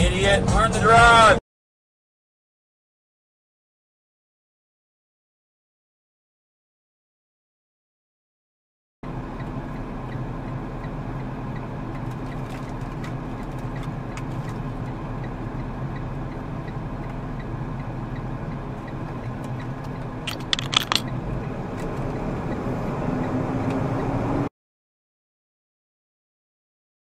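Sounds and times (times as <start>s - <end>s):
diesel truck engine running: 0.0s - 1.4s, 9.0s - 24.5s
sharp clicks or rattles: 19.8s - 21.1s.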